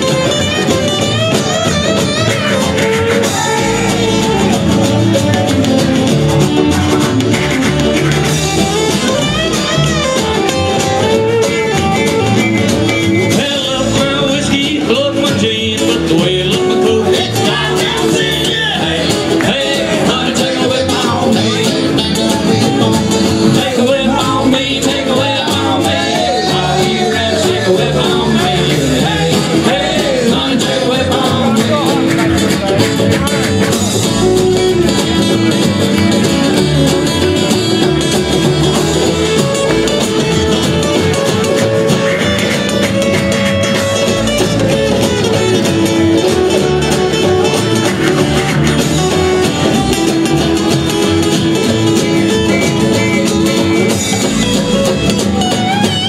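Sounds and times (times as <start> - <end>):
acoustic guitars and banjo: 0.0 - 56.0
man singing: 2.5 - 5.5, 13.0 - 34.4.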